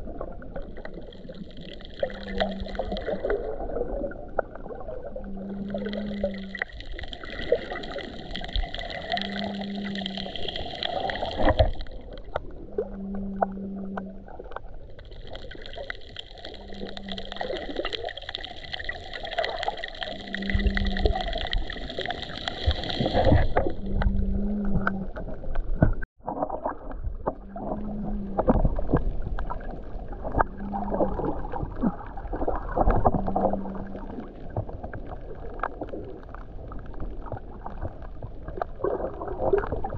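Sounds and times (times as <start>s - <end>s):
muffled underwater water movement: 0.0s - 39.9s
low hum: 23.1s - 29.5s.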